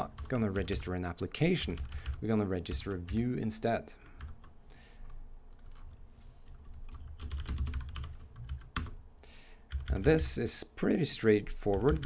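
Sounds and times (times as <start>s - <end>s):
typing on computer keyboard: 1.7s - 3.2s, 5.5s - 9.0s, 9.7s - 10.3s, 11.7s - 12.0s.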